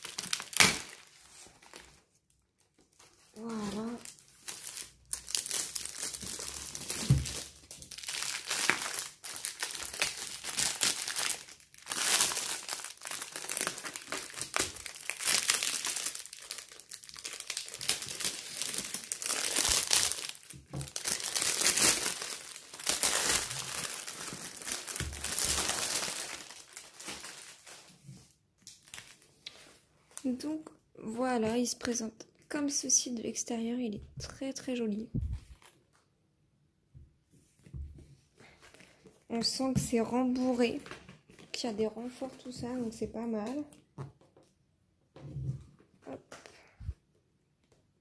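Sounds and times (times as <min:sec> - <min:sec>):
plastic film crinkling: 0:00.0 - 0:28.0, 0:28.7 - 0:29.6.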